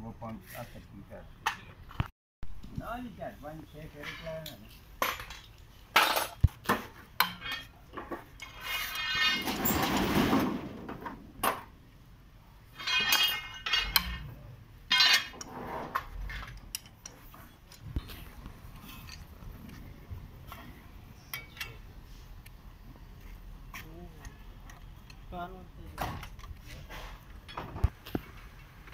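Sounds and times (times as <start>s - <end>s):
rasping metal-on-metal: 8.4s - 9.8s
metallic clicks and clanks: 12.8s - 14.3s, 14.9s - 18.2s.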